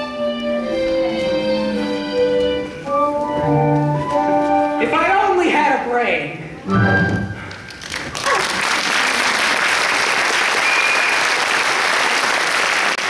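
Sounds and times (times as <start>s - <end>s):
audience applauding: 7.4s - 13.0s
high whistle: 10.5s - 11.4s.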